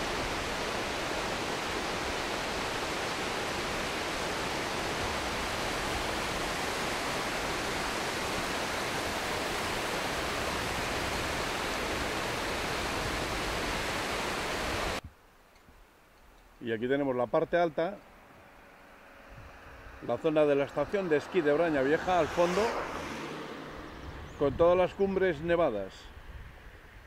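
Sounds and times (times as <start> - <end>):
river water rushing: 0.0 - 15.0, 18.4 - 24.1.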